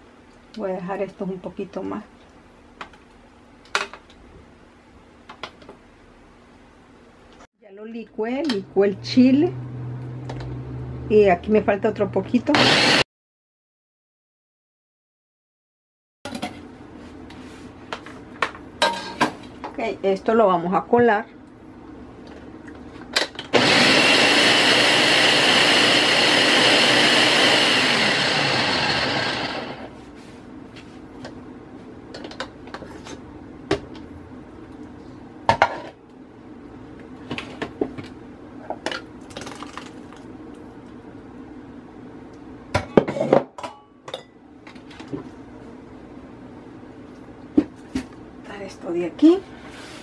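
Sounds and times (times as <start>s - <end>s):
blender running: 12.4s - 13.1s, 23.5s - 30.0s.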